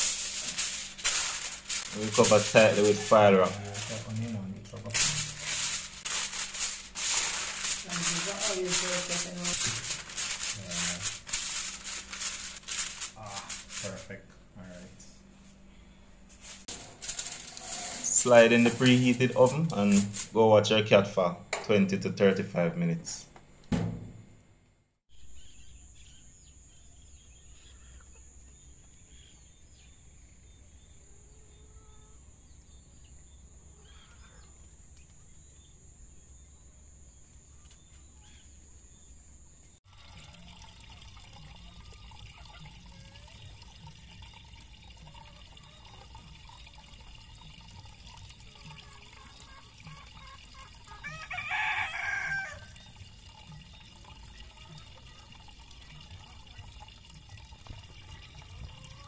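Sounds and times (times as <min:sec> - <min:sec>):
rooster crowing: 0:50.8 - 0:52.9.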